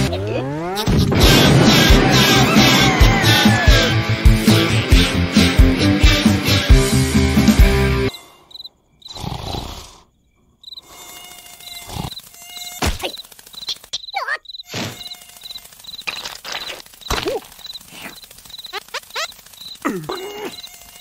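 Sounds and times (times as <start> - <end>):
cartoon gliding squeaks: 8.0 - 9.2, 10.7 - 21.0
crickets chirping: 8.1 - 21.0.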